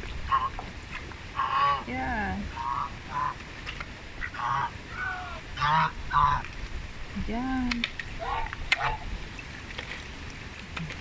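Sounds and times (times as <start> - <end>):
geese honking: 0.3 - 0.6, 1.4 - 1.9, 2.5 - 3.4, 4.2 - 6.4, 8.2 - 9.1.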